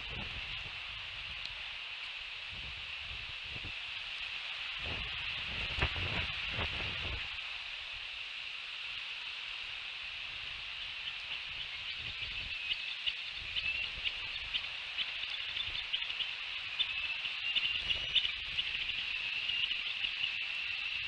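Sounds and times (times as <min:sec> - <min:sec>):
wind rumble on microphone: 0:00.0 - 0:08.4, 0:09.5 - 0:21.0
eaglets chirping: 0:11.0 - 0:20.8.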